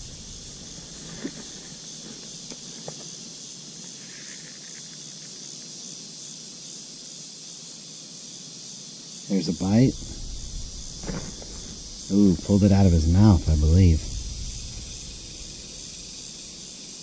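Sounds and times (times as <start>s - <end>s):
crickets and insects chirping: 0.0s - 17.0s.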